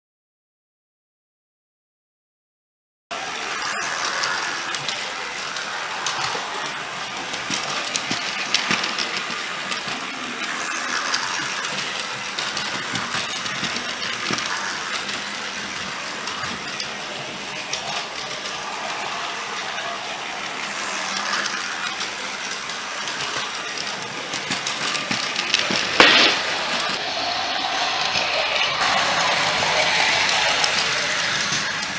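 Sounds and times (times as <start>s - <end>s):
toy train motors whirring: 3.1s - 31.9s
loud clatter: 3.2s - 31.9s
toy train wheels rattling: 3.2s - 31.9s.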